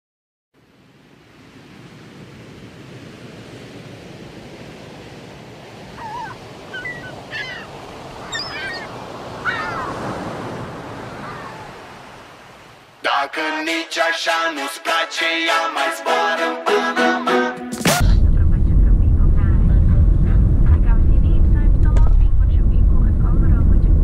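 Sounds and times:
birds chirping: 5.9s - 10.1s.

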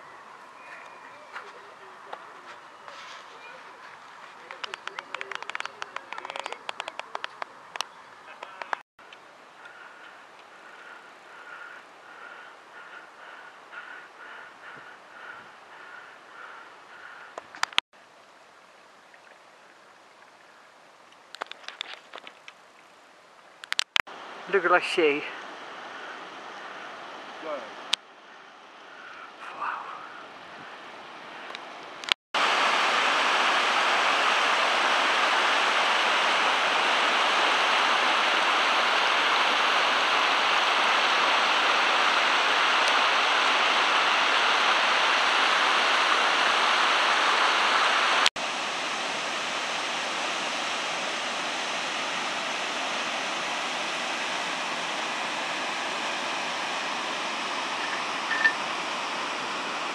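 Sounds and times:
stream rushing over rocks: 32.4s - 59.9s.

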